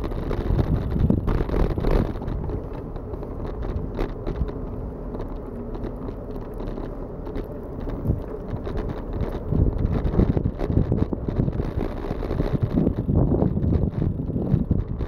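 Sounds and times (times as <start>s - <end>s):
small clicks and crackles: 0.0s - 15.0s
wind rumble on microphone: 0.0s - 15.0s.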